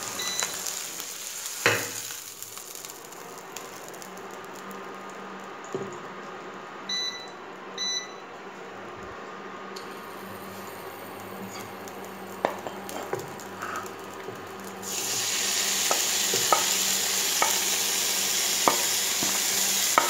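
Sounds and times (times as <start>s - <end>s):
low hum from hob: 0.0s - 20.0s.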